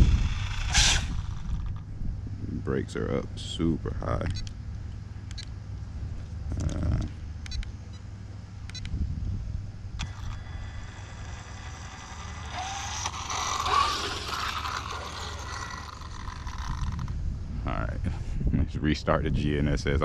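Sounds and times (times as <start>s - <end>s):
electric motor whining: 0.0s - 1.9s, 10.0s - 17.2s
wind rumble on microphone: 0.0s - 4.4s, 8.8s - 10.9s, 15.6s - 20.0s.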